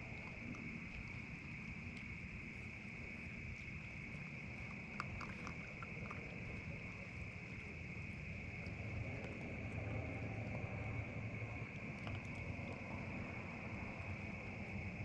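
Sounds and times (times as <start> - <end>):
low rumbling hiss: 0.0 - 15.0
night insects trilling: 0.0 - 15.0
faint clicks: 1.9 - 2.2, 4.6 - 7.0.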